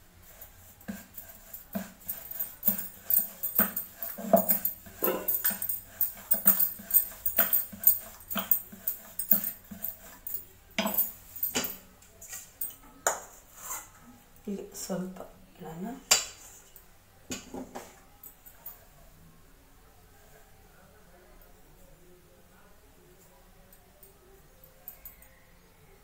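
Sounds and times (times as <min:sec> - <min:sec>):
rolling pin rolling dough on board: 0:00.2 - 0:11.7.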